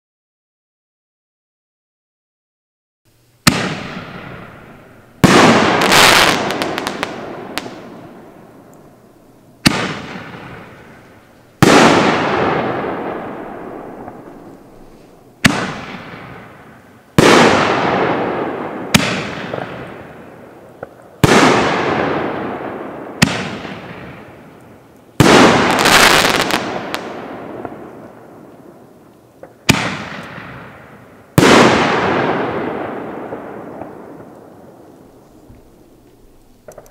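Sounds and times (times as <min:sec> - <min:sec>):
firework crackling: 0:03.1 - 0:36.9
firework mortar launch thump: 0:03.4 - 0:04.5.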